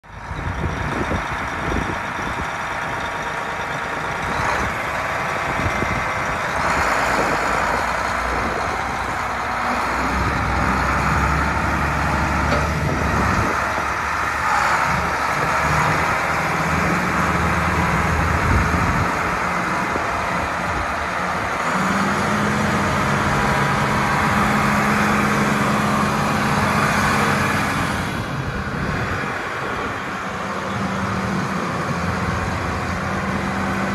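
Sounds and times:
tractor diesel engine running: 0:00.0 - 0:33.9.

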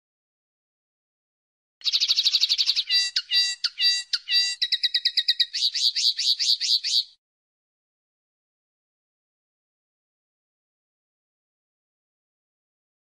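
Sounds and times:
linnet song trill: 0:01.8 - 0:07.2.

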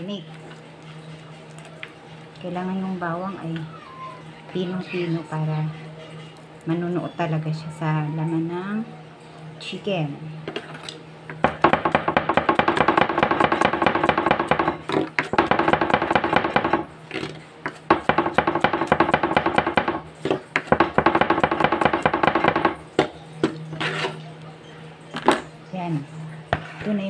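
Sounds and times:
knife chopping on cutting board: 0:11.4 - 0:23.2.

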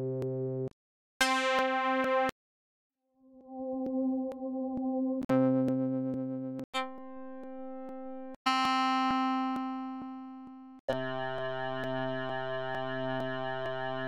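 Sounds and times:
electric keyboard: 0:10.9 - 0:14.0.

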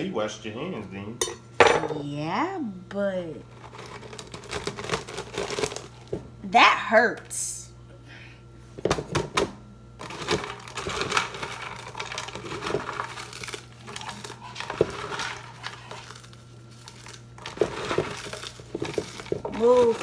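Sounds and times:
snacks crunching in blender jar: 0:10.0 - 0:20.0.

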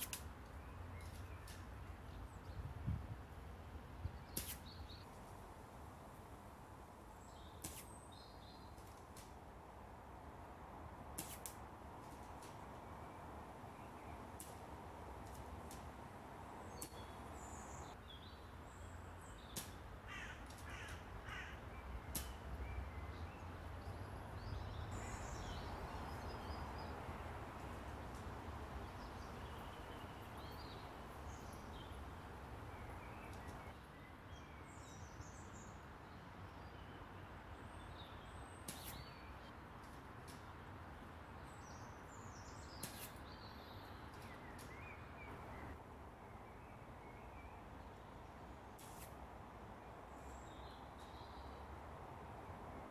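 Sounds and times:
birds calling: 0:19.3 - 0:27.0
crows cawing: 0:20.1 - 0:21.6.

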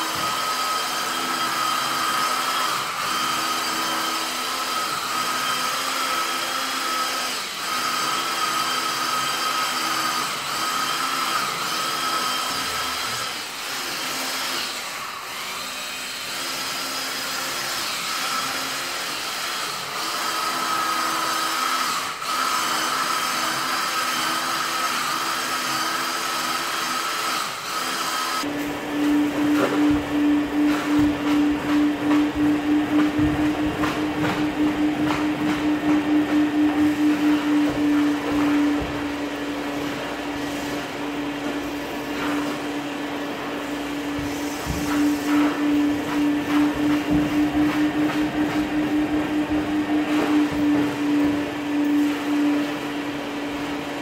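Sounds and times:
vacuum motor whine: 0:28.3 - 0:54.0.

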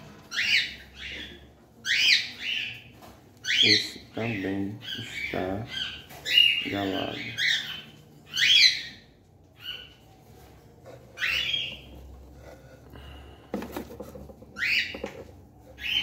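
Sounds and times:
cockatiel squawking: 0:11.2 - 0:11.9.

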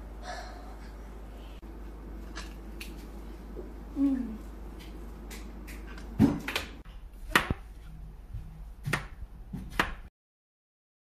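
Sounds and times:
faint hum: 0:00.0 - 0:09.5
knife chopping on cutting board: 0:07.3 - 0:07.6, 0:08.8 - 0:10.1.

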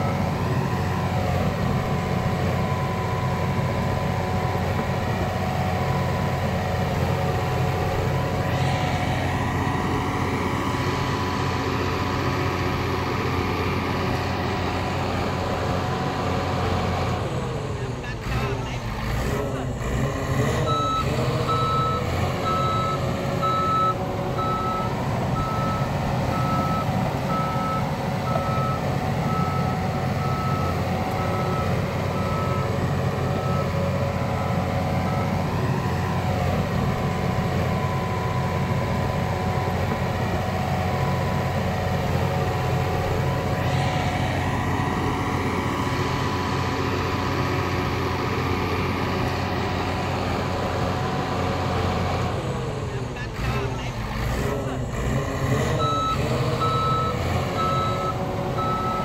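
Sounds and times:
reversing alarm beeping: 0:00.0 - 0:06.5, 0:07.4 - 0:14.5, 0:20.5 - 0:40.2, 0:55.6 - 0:59.0
heavy diesel engine running: 0:00.0 - 0:59.0.

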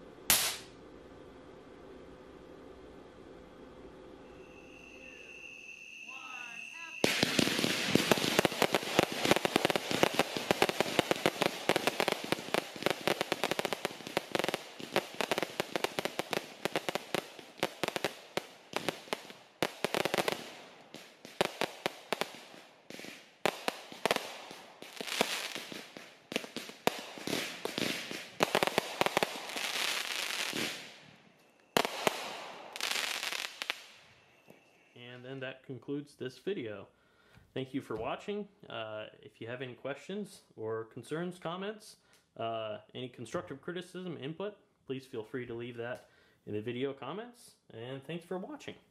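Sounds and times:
fireworks bursting and crackling: 0:00.0 - 0:00.8, 0:04.4 - 0:34.9.

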